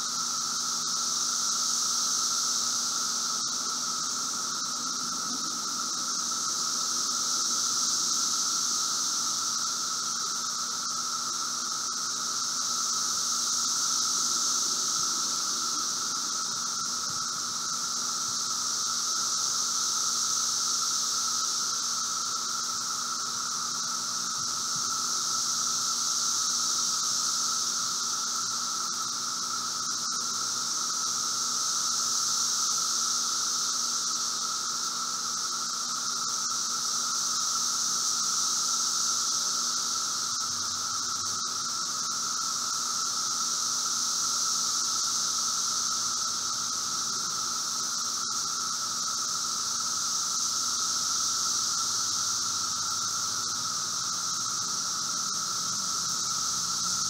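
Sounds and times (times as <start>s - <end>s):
lower steady drone: 0.0s - 35.8s
cicadas droning: 0.0s - 57.0s.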